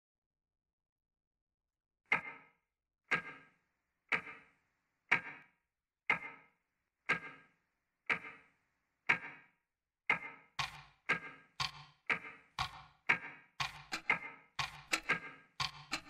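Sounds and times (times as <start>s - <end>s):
clock ticking: 3.1s - 3.4s, 5.1s - 5.4s, 6.1s - 6.4s, 7.1s - 7.4s, 8.1s - 8.4s, 10.1s - 16.0s.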